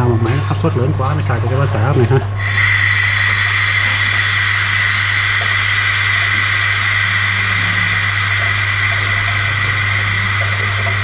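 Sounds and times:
low hum: 2.4s - 11.0s
valve hissing: 2.4s - 11.0s.

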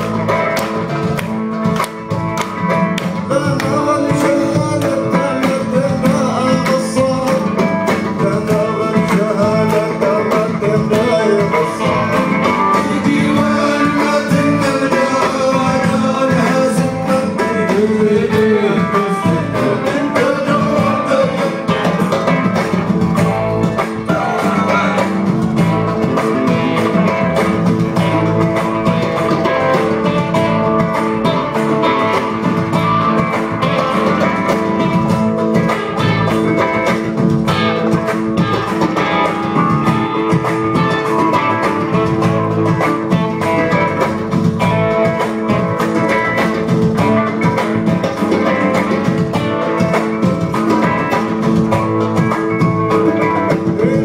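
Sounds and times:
drum groove: 0.0s - 54.0s
electric guitars: 0.0s - 54.0s
voices singing: 3.2s - 22.4s, 23.6s - 26.8s.

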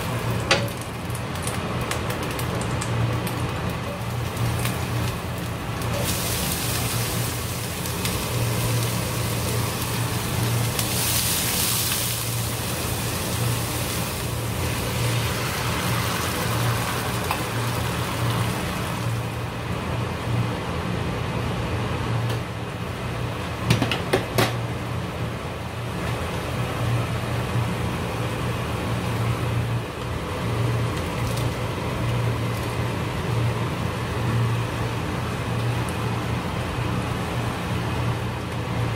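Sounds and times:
food sizzling in oil: 0.0s - 19.5s
sauce bubbling: 1.0s - 19.4s.

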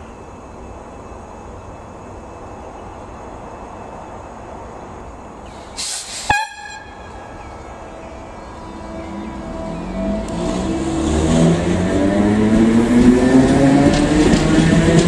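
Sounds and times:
electric train rumbling: 0.0s - 15.0s
burst of hiss: 5.5s - 6.4s
high train horn toot: 6.3s - 10.9s.

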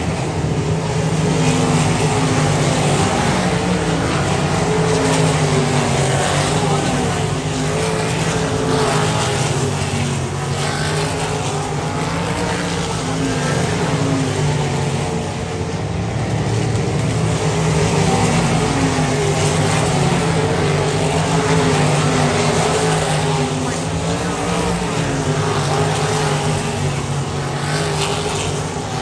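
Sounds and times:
race car engines lapping: 0.0s - 29.0s.

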